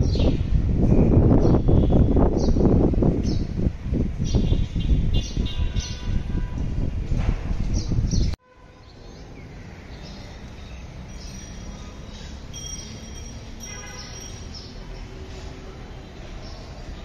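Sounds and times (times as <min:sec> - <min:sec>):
distant traffic hum: 0:00.0 - 0:17.0
birds chirping: 0:04.2 - 0:06.2, 0:07.7 - 0:17.0.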